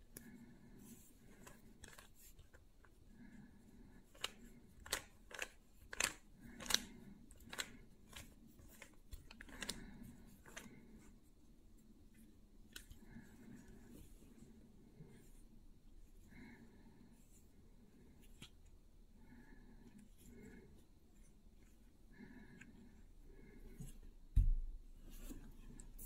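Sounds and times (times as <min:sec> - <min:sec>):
puzzle cube layers clicking: 0:04.2 - 0:06.9.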